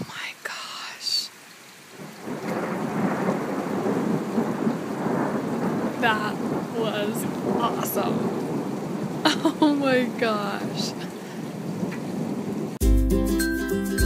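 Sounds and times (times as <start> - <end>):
rain falling: 0.0 - 12.8
thunder rumbling: 1.9 - 12.8.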